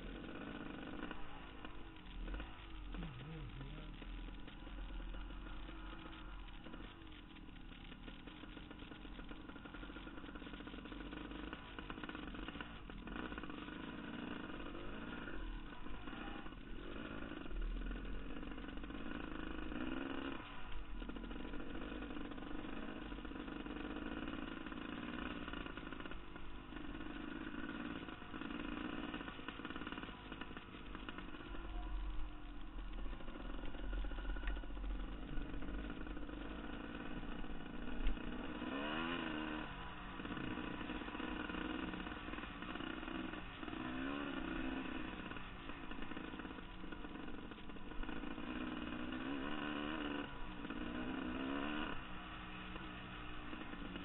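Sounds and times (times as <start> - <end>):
dirt bike engine: 0.0 - 54.0.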